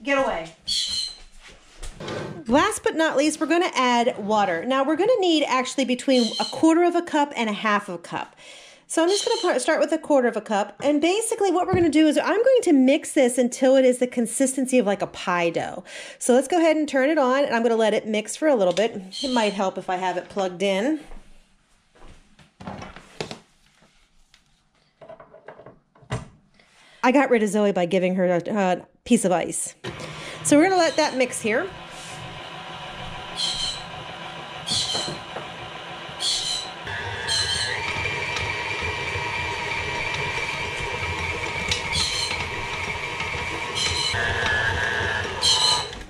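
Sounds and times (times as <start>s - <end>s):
stand mixer motor whine: 29.8s - 46.0s
short high squeaks: 33.4s - 33.9s, 34.7s - 35.2s, 36.2s - 37.9s, 45.4s - 46.0s.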